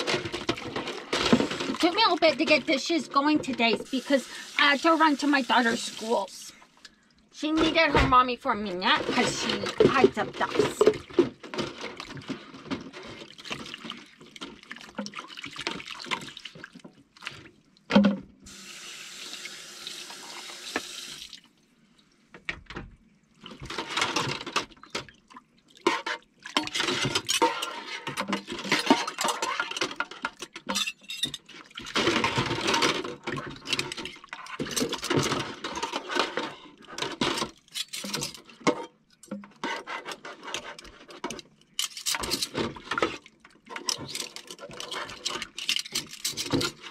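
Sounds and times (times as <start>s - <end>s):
tap water running and splashing: 0.0s - 6.5s, 8.8s - 17.6s, 18.5s - 21.5s
cutlery and dishes clinking: 25.9s - 33.0s, 33.6s - 38.9s.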